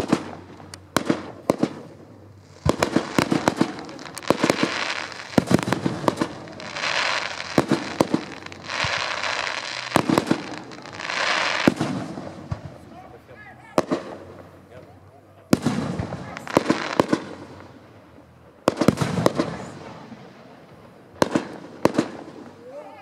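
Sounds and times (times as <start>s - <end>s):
firework hissing and crackling: 0.0s - 14.7s, 15.5s - 23.0s
firework shells launching and bursting: 2.5s - 12.7s.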